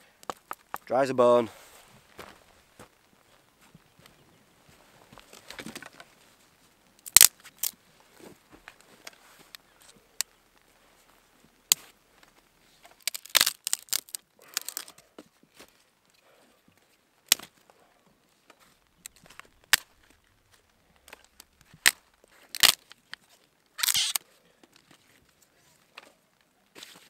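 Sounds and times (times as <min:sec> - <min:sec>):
dry sticks snapping: 0:07.0 - 0:07.8, 0:11.7 - 0:15.0, 0:17.3 - 0:17.6, 0:18.5 - 0:24.2.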